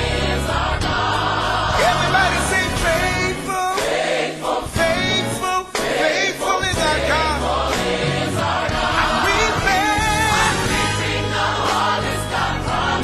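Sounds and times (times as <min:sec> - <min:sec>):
instrumental backing with bass: 0:00.0 - 0:06.0, 0:06.6 - 0:13.0
choir singing gospel: 0:00.0 - 0:13.0.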